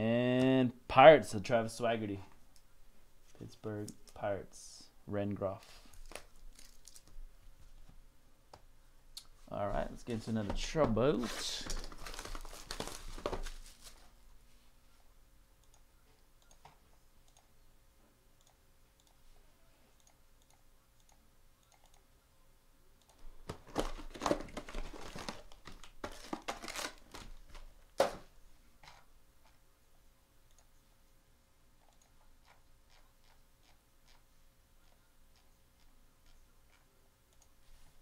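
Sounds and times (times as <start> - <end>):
wrapping crinkling and tearing: 5.9 - 7.2, 11.3 - 14.1, 23.4 - 27.6
faint regular ticking: 18.4 - 19.2.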